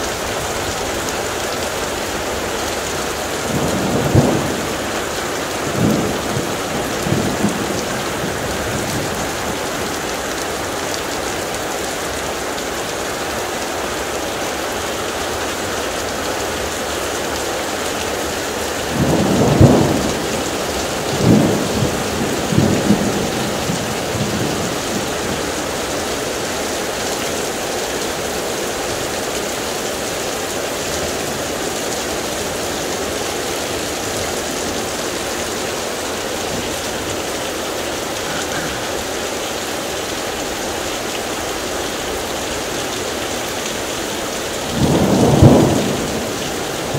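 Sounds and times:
heavy rain pouring: 0.0s - 46.9s
thunder rumbling: 3.3s - 10.0s, 18.8s - 26.0s, 44.6s - 46.9s.

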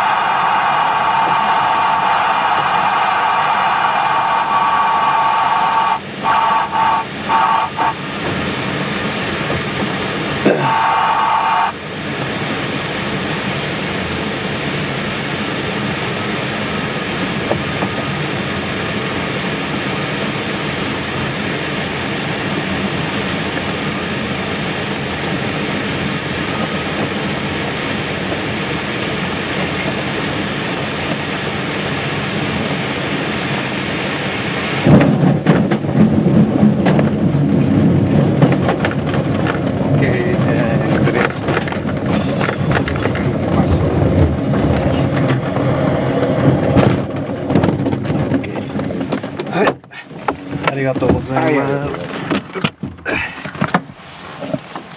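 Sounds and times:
air rushing over canopy: 0.0s - 10.4s
wheels rumbling over grass: 34.7s - 54.9s.

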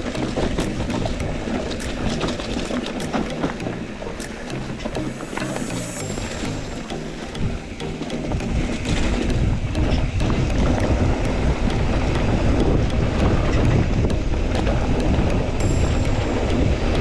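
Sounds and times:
wind buffeting microphone: 7.4s - 17.0s.

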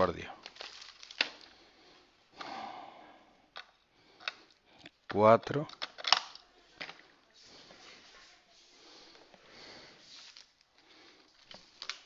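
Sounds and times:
faint slow breathing: 1.2s - 5.0s, 7.0s - 12.0s.

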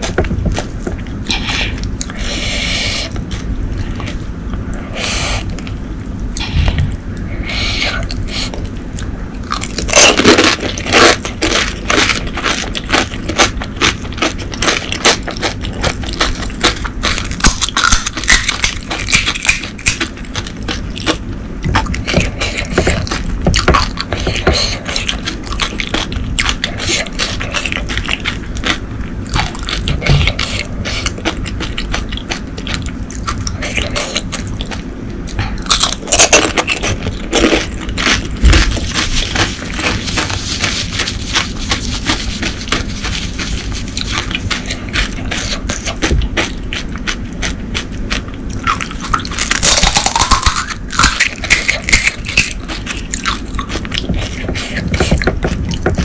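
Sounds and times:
wet chewing: 0.0s - 56.0s
crisp shells crunching: 9.4s - 34.9s, 35.6s - 54.4s.

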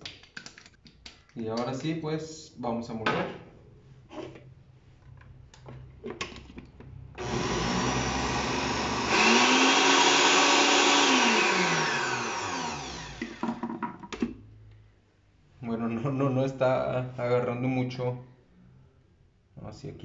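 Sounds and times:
blender grinding: 7.2s - 13.7s.

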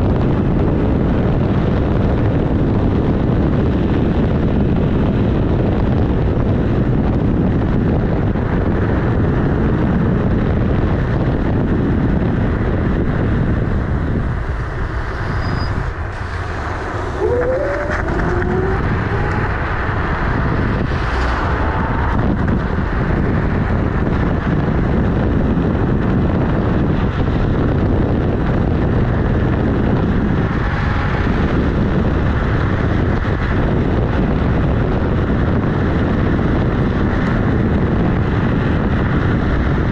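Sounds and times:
tyre and road noise: 0.0s - 39.9s
wind buffeting microphone: 0.0s - 39.9s
brief rising whine: 15.1s - 20.0s.

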